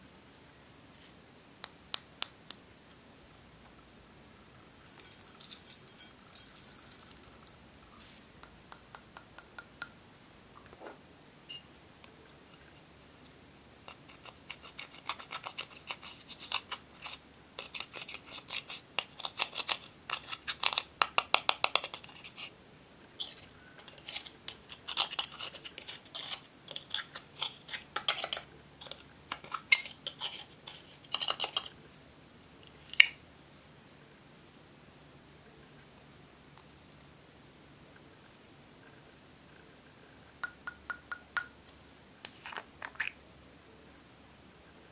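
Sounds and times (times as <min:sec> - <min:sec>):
sequins rattling in glass bottle: 0:04.8 - 0:07.2
spatula scraping eyeshadow palette: 0:23.2 - 0:31.8.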